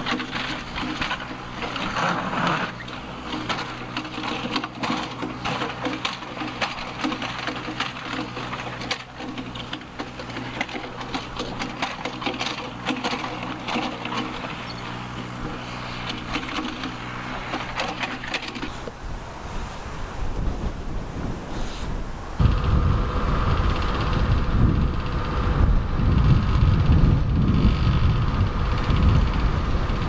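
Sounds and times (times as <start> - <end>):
bucket clanks and scrapes: 0.0 - 18.9
mini excavator engine running: 0.0 - 30.0.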